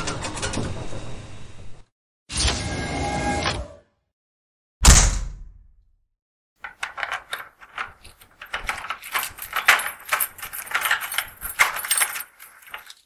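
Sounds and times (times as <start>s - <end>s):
keys jangling in a door lock: 6.6s - 13.0s.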